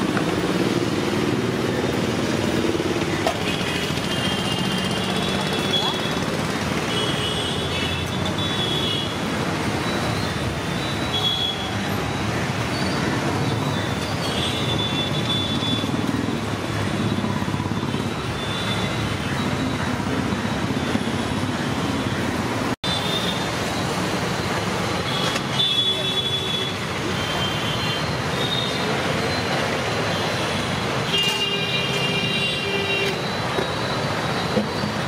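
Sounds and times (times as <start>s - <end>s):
road traffic: 0.0s - 35.0s.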